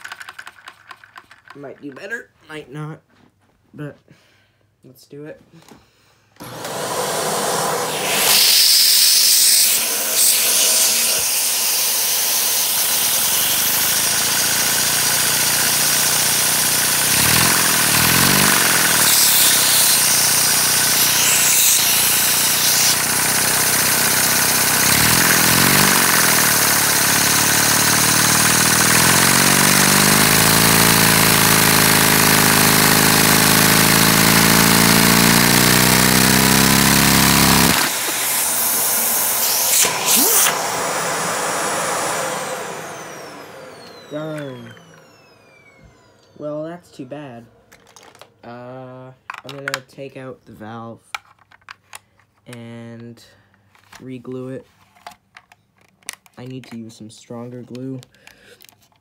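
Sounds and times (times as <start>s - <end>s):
small engine mechanical clatter: 0.0s - 1.6s, 12.4s - 40.5s
suction hiss: 7.0s - 11.5s, 37.5s - 41.9s.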